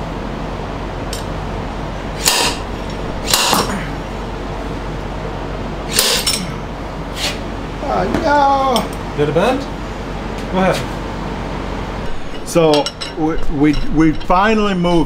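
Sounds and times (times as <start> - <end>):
steady background hum: 0.0 - 15.0
sharp metallic cracks: 2.2 - 3.8, 5.9 - 6.5.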